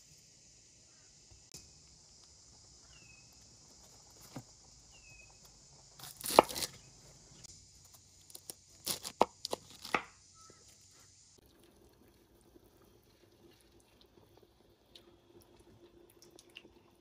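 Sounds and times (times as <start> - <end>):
knife crunching through fruit: 6.0 - 6.8, 8.3 - 10.1.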